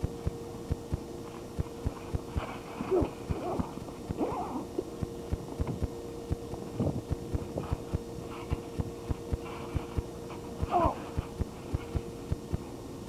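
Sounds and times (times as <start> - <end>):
faint steady hum: 0.0 - 13.0
person shouting: 10.7 - 11.0.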